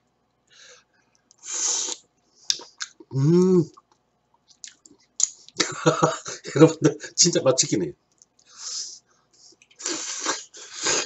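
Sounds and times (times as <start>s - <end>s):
sucking slurp: 1.4s - 2.7s, 9.7s - 11.0s
man humming mmm: 3.1s - 3.8s.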